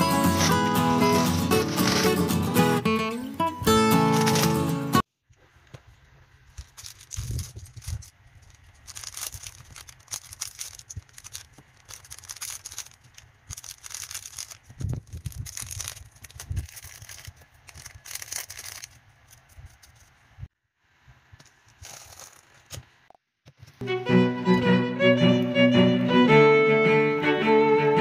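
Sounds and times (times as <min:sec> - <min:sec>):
plastic wrappers tearing and rustling: 0:00.0 - 0:02.8, 0:03.9 - 0:04.8, 0:06.5 - 0:20.1, 0:21.7 - 0:22.7.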